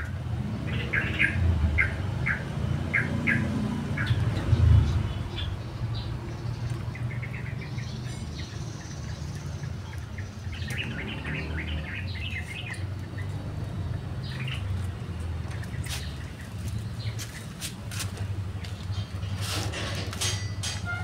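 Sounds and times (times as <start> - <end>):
small birds chirping: 0.0 - 19.6.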